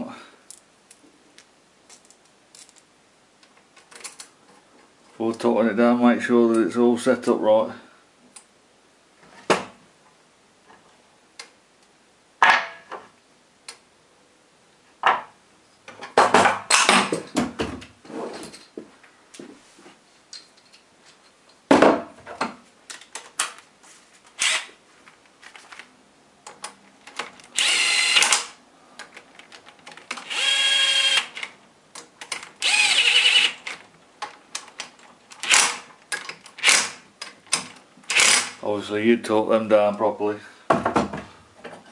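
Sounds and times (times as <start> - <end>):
small metal parts clattering: 1.9 - 2.9
power drill whirring: 24.4 - 24.7, 27.5 - 28.6, 30.2 - 31.4, 32.6 - 33.7, 38.1 - 38.6.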